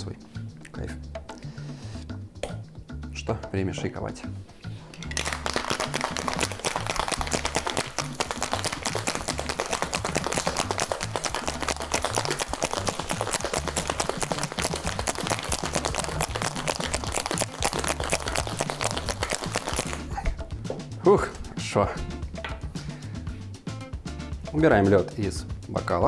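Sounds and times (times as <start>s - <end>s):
ice rattling in cocktail shaker: 5.0s - 20.2s.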